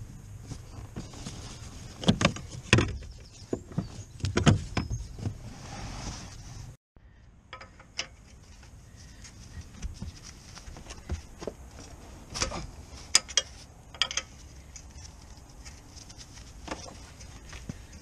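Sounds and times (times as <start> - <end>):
hand tools clicking and knocking: 10.9 - 15.7.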